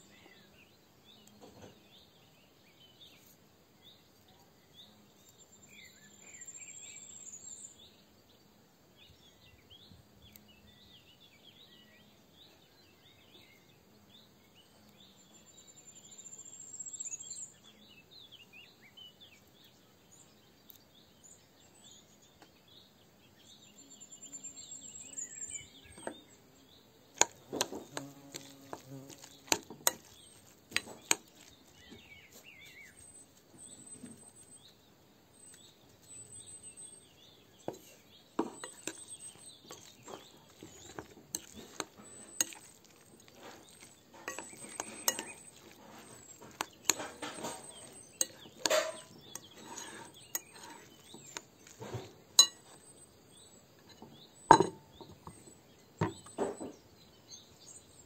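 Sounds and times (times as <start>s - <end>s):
hands mixing ground meat: 27.1s - 34.7s, 37.7s - 53.2s
clinks against glass bowl: 44.2s - 45.8s, 52.4s - 52.7s, 54.5s - 55.2s.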